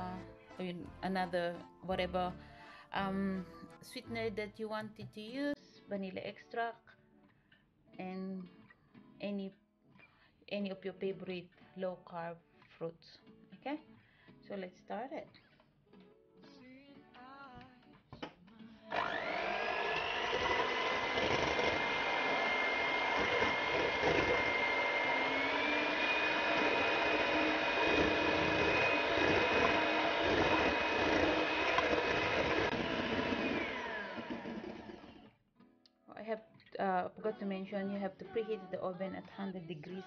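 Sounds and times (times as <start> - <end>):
electric hand mixer whining: 18.9 - 35.3.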